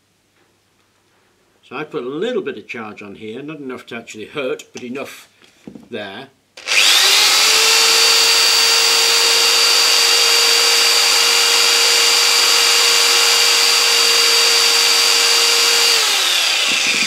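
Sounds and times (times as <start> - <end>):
electric drill motor whine: 6.6 - 17.0.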